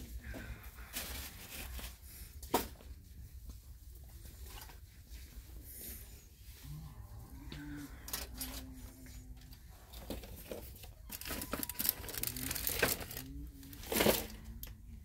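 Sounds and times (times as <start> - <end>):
handling noise rustling and clicks: 8.0 - 14.8.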